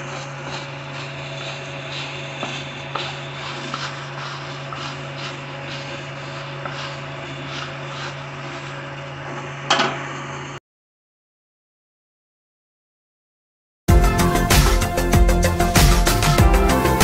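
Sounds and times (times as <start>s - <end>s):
steady low hum: 0.0s - 9.7s
spoon stirring puffed rice in bowl: 0.1s - 8.6s.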